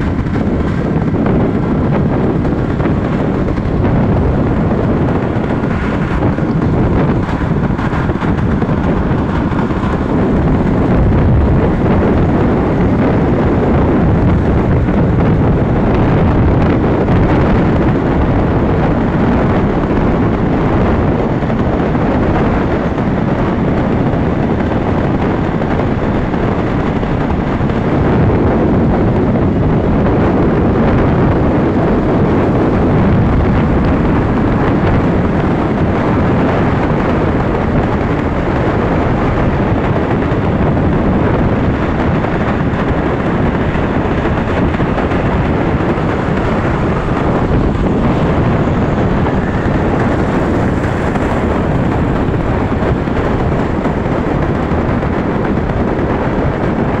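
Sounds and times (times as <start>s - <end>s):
motorcycle running: 0.0s - 57.0s
road noise: 0.0s - 57.0s
wind buffeting microphone: 0.0s - 57.0s.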